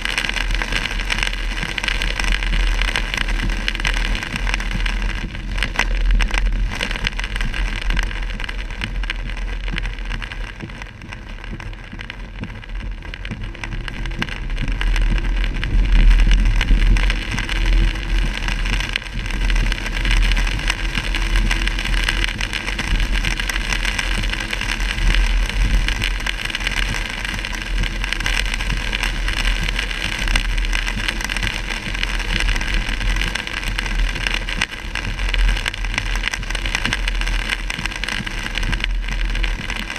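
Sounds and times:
heavy rain: 0.0s - 39.9s
low rumble: 0.0s - 39.9s.

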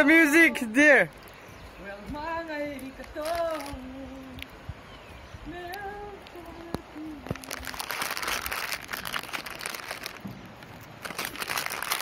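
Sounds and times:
plastic chip packet crinkling: 3.0s - 3.8s, 7.3s - 12.0s.

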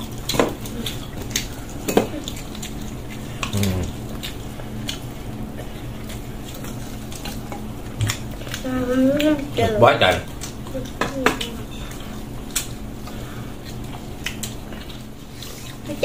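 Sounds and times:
eating noises: 0.0s - 16.0s
low vocal sound: 3.4s - 4.0s.

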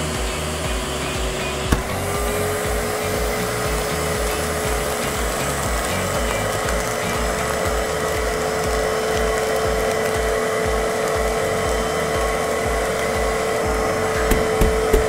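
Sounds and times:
low pulse: 0.0s - 15.0s
shop vacuum whining: 0.0s - 15.0s.

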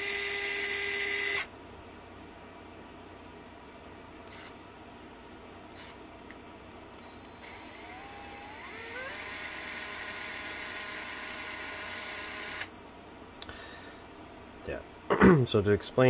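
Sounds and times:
cordless screwdriver whining: 0.0s - 1.5s, 7.0s - 12.7s.

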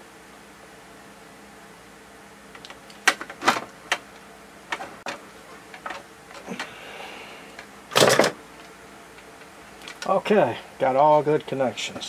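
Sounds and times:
handling noise: 2.5s - 6.8s.

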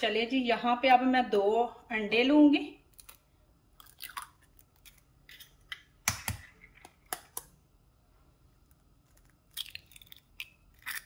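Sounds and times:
egg cracking into a bowl: 3.8s - 7.6s, 9.0s - 11.0s.

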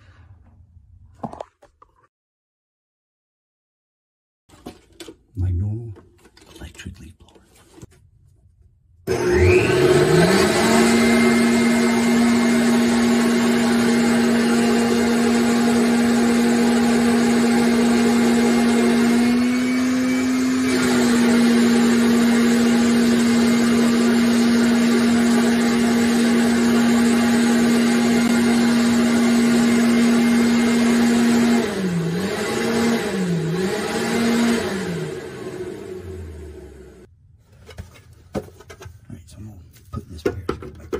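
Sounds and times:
power drill spinning brush: 9.1s - 36.3s.

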